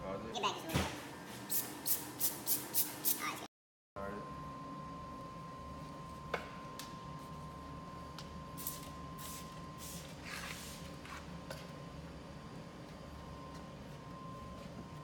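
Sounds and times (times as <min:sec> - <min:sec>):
spray bottle hissing sprays: 0:01.5 - 0:03.2.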